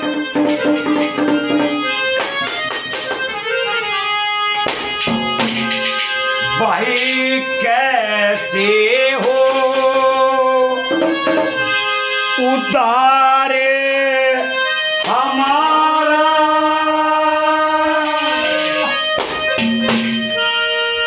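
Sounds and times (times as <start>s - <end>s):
sharp percussion strikes: 0.0s - 3.7s, 4.6s - 7.8s, 10.9s - 11.9s, 16.6s - 20.5s
harmonium drone: 0.0s - 21.0s
man singing held notes: 6.4s - 10.9s, 12.4s - 19.0s.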